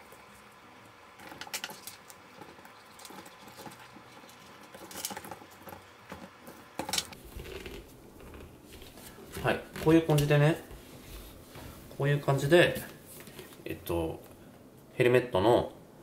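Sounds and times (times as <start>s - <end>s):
plastic scraping: 1.2s - 10.3s.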